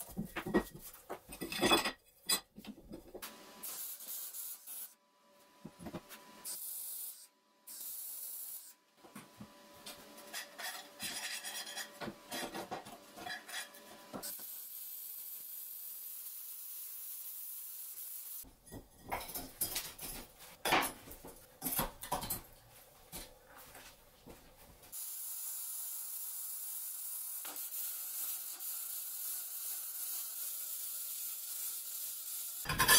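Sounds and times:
metal tube scraping on plate: 10.3 - 12.6, 32.7 - 32.9.

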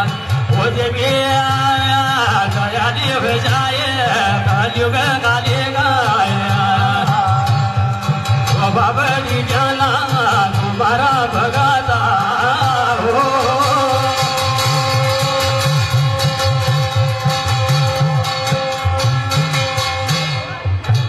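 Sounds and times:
man singing: 0.0 - 20.6
hourglass drum beat: 0.0 - 21.0.

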